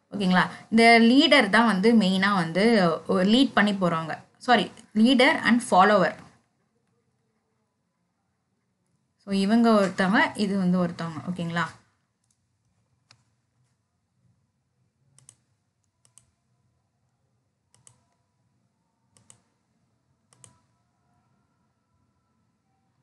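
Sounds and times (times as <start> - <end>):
computer input clicks: 15.2 - 16.4, 17.7 - 18.2, 19.2 - 19.5, 20.3 - 20.7.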